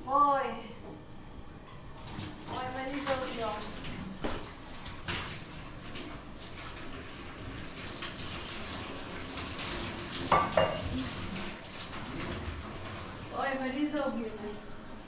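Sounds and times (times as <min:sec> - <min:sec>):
tap water running into sink: 0:02.0 - 0:13.8
dishes clinking: 0:10.3 - 0:11.0.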